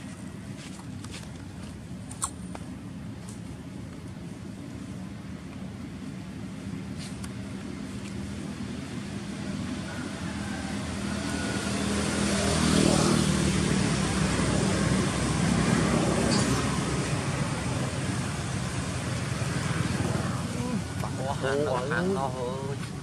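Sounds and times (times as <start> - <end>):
vehicle passing by: 8.6 - 23.0.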